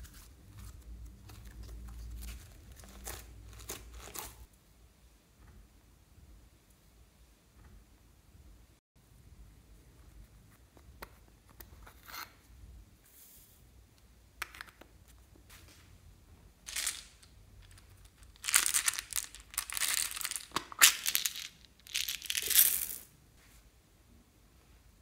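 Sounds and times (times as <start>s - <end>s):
plastic beads crackling onto slime: 16.7s - 23.0s.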